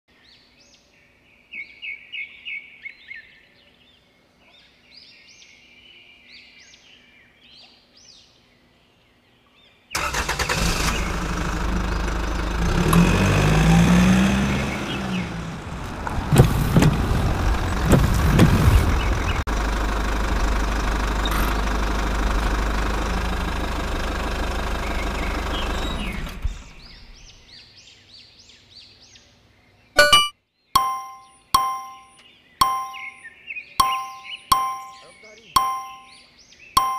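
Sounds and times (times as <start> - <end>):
birds chirping: 0.1 - 19.7, 22.8 - 36.9
loud noisy rumble: 12.6 - 27.1.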